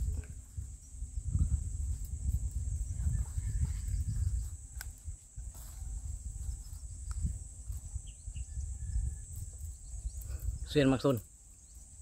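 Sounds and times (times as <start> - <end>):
high insect buzz: 0.0 - 12.0
wind rumbling on microphone: 0.0 - 12.0
faint clicks of wire strands: 4.7 - 5.1.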